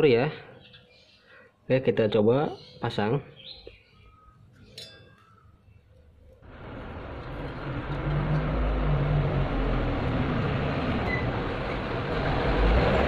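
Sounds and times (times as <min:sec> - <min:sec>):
engine rumbling: 0:06.4 - 0:13.0.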